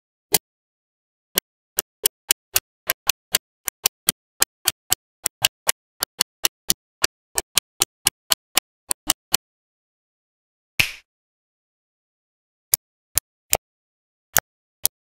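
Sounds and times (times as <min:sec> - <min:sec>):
magnetic balls clicking together: 0:01.4 - 0:09.4.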